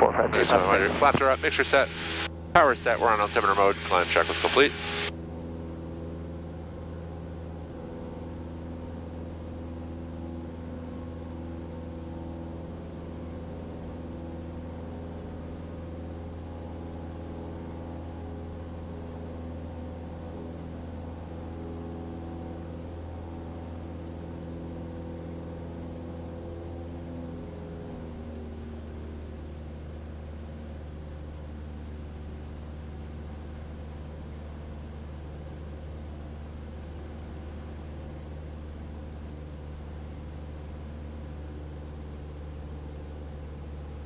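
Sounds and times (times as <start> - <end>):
thin high whine: 0.0 - 5.8
propeller plane engine droning: 0.0 - 44.0.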